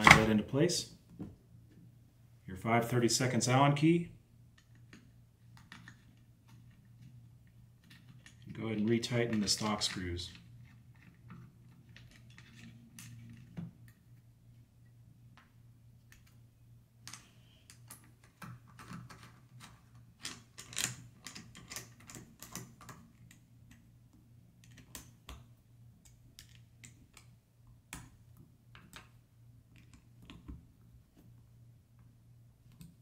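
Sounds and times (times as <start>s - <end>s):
faint steady hum: 0.0s - 33.0s
allen key clicking on screws: 17.0s - 23.8s.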